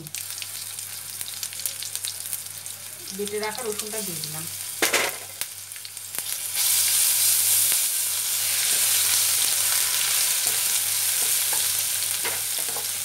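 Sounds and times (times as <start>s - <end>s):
paste sizzling in hot oil: 0.1s - 13.0s.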